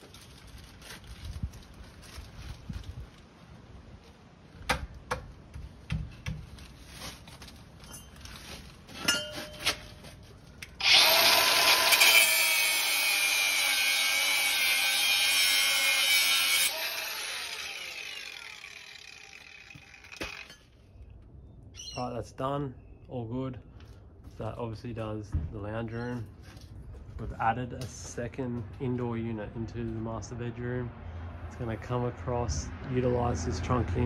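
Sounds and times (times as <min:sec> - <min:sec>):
angle grinder cutting metal: 0:10.8 - 0:20.6.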